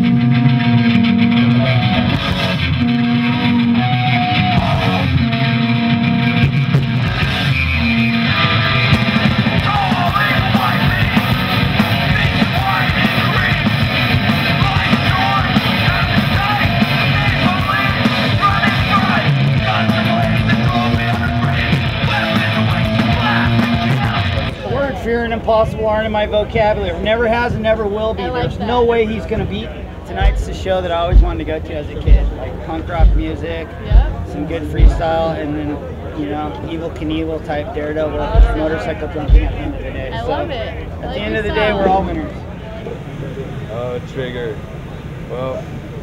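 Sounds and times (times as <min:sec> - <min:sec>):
punk rock band playing: 0:00.0 - 0:24.8, 0:30.1 - 0:35.4, 0:38.2 - 0:41.9
person singing: 0:09.6 - 0:13.8, 0:14.4 - 0:24.3.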